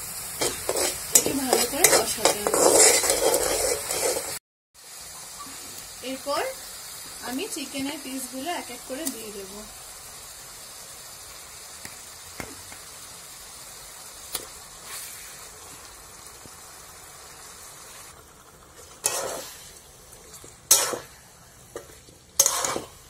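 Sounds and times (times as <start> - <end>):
spatula scraping and stirring pan: 0.0 - 4.4, 14.4 - 16.7, 17.3 - 23.0
chicken sizzling in hot oil: 0.0 - 23.0.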